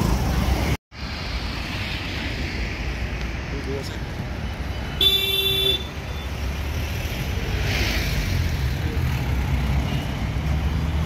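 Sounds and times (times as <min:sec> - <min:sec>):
traffic engine rumble: 0:00.0 - 0:11.0
vehicle horn: 0:05.0 - 0:06.0.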